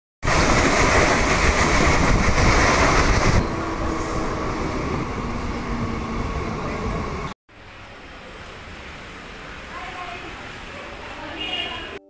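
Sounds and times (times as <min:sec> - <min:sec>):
train wheel and track noise: 0:00.2 - 0:12.0.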